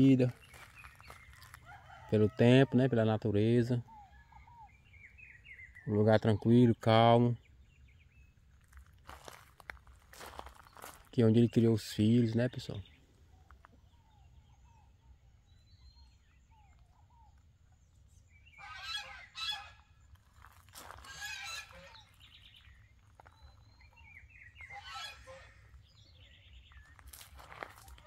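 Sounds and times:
poultry harsh calls: 18.5s - 28.0s.

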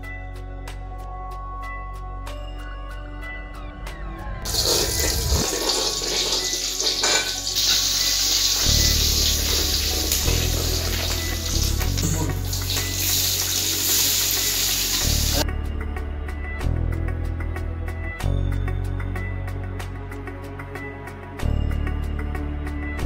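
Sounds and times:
hot oil sizzling: 4.4s - 15.4s
metal ladle stirring: 4.5s - 8.5s.

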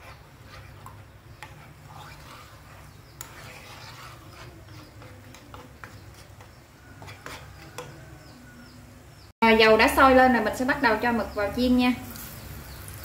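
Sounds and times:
oil bubbling and crackling in pan: 12.0s - 13.0s.

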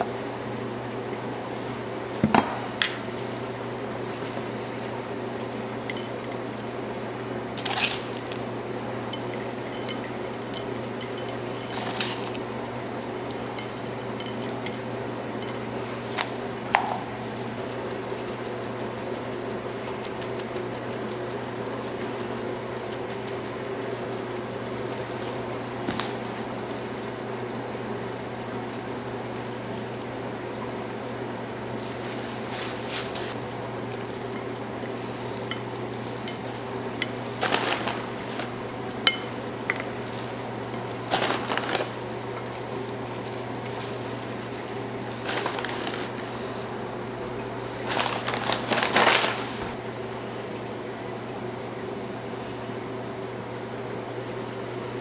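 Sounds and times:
low room hum: 0.0s - 55.0s
crumbs pattering onto a plate: 2.8s - 4.8s, 7.5s - 27.2s, 29.0s - 30.2s, 31.7s - 46.6s, 47.4s - 49.8s
clinks on a ceramic plate: 39.0s - 39.9s.

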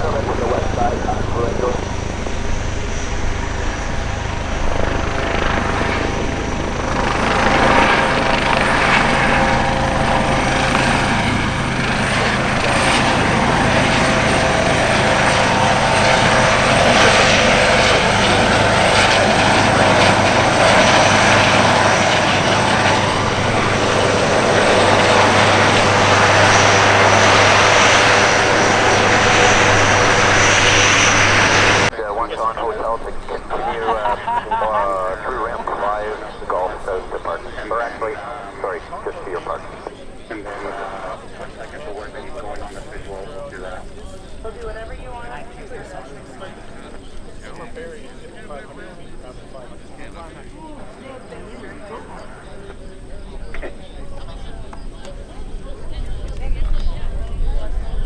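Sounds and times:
helicopter passing close: 0.0s - 58.0s.

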